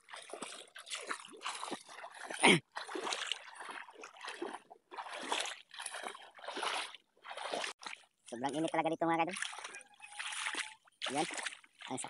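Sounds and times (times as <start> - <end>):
person wading through splashing water: 0.0 - 12.0.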